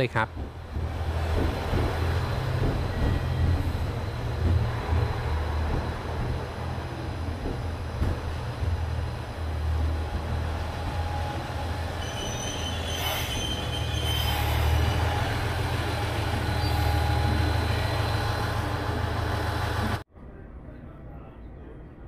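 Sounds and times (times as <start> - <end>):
train squeal: 2.7 - 4.3, 10.9 - 19.5
diesel engine humming: 14.5 - 20.0.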